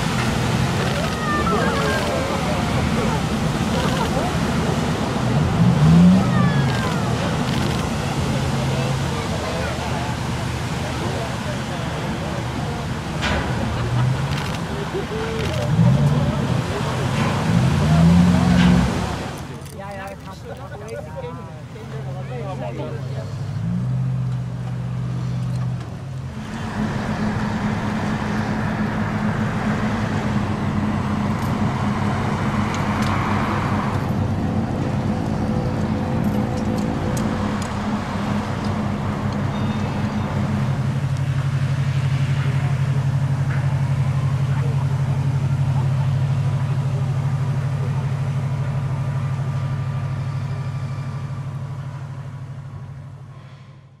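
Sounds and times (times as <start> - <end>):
noisy wash: 0.0 - 50.8
low engine hum: 0.0 - 54.0.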